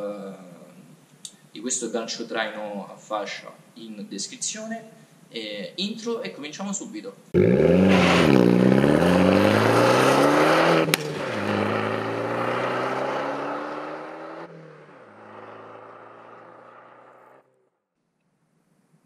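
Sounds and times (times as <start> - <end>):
exhaust crack at upshift: 7.4 - 17.4
car engine accelerating hard: 7.4 - 17.5.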